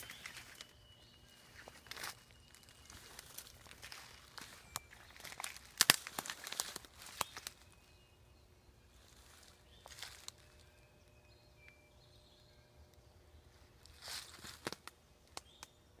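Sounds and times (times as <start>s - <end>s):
footsteps in dry leaves: 0.0s - 8.0s, 8.9s - 10.9s, 13.7s - 14.9s
high bird chirps: 0.0s - 13.3s.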